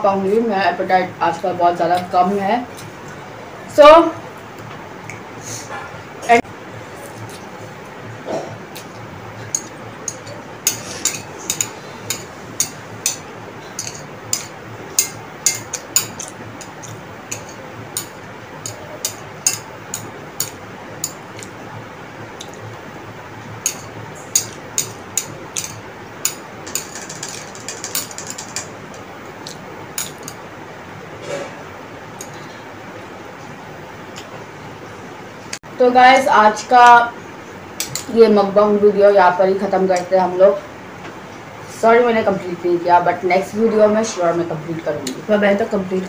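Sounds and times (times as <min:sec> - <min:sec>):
cutlery clinking on ceramic plate: 0:09.5 - 0:21.2, 0:23.6 - 0:28.7, 0:30.0 - 0:30.4.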